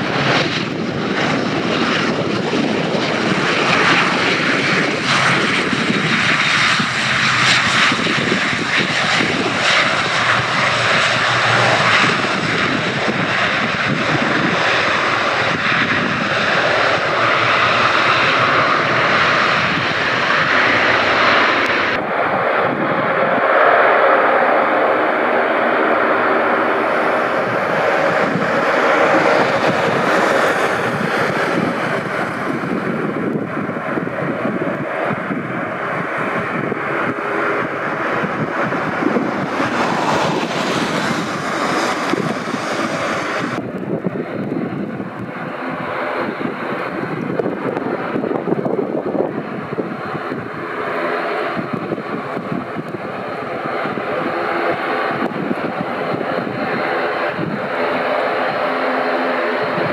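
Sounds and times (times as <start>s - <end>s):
turboprop engines droning: 0.0s - 59.9s.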